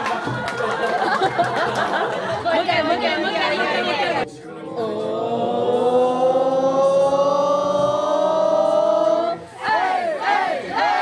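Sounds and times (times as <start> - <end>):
crowd chanting one long note: 3.3 - 11.0.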